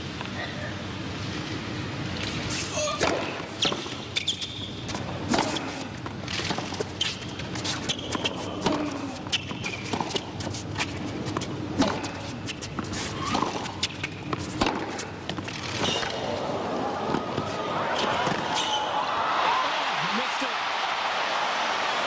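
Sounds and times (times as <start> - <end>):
sneakers squeaking on court: 2.8 - 5.7, 6.4 - 16.2, 17.9 - 18.9
racket striking tennis ball: 4.9 - 5.8, 7.7 - 10.3, 11.3 - 16.2.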